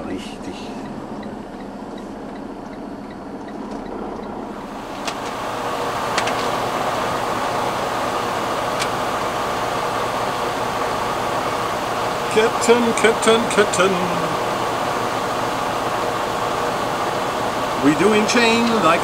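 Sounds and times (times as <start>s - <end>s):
truck engine running: 0.0s - 19.0s
steady rushing noise: 4.4s - 19.0s.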